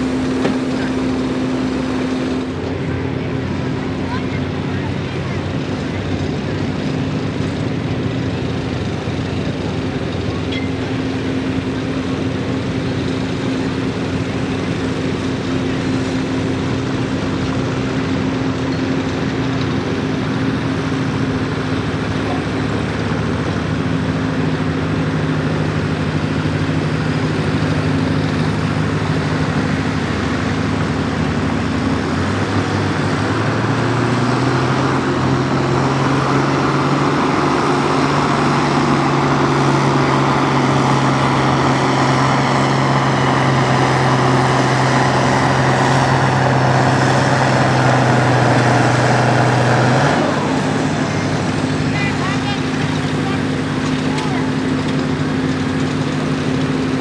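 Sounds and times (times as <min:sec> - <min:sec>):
diesel tractor engine under load: 0:00.0 - 0:57.0.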